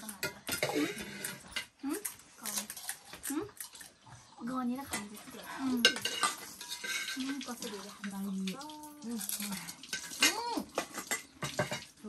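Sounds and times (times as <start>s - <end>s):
wet crunching and slurping: 2.0s - 5.6s
women chattering: 4.4s - 6.2s.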